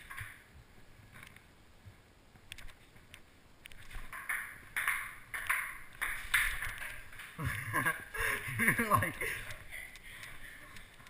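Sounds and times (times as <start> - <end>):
ping-pong ball clicking: 4.1 - 7.0.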